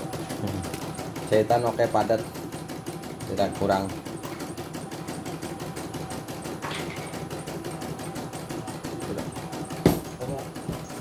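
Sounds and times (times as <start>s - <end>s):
sharp knock: 9.8s - 10.1s.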